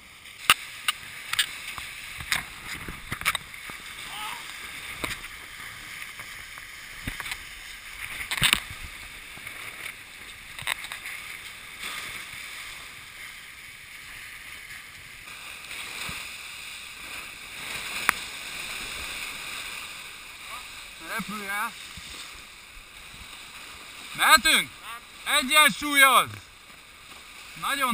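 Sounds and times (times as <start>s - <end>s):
water rushing along hulls: 0.0s - 27.9s.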